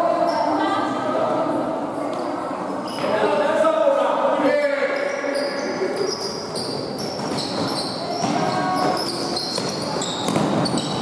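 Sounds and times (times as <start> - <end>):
shoes squeaking on floor: 2.8 - 3.2, 4.9 - 11.0
basketball dribbling: 7.2 - 11.0.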